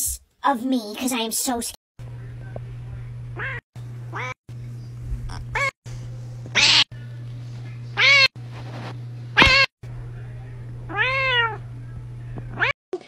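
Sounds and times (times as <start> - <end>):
steady low hum: 2.0 - 12.7
cat meowing: 3.4 - 4.4, 6.6 - 6.8, 8.0 - 8.3, 9.4 - 9.7, 10.9 - 11.6.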